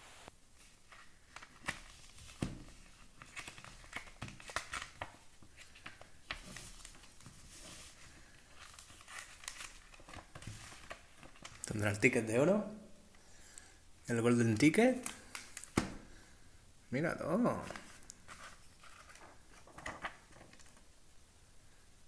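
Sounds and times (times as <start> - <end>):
chocolate wrapper crinkling: 7.9 - 11.7.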